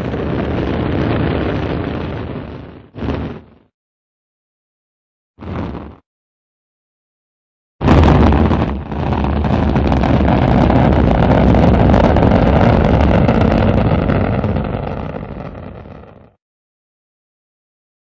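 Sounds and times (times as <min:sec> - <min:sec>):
rocket engine blast and rushing: 0:00.0 - 0:03.7, 0:07.8 - 0:16.3.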